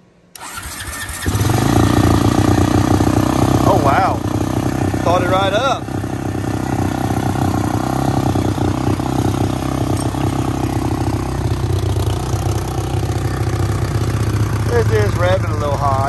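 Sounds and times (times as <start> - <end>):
atv engine idling: 0.4 - 16.0.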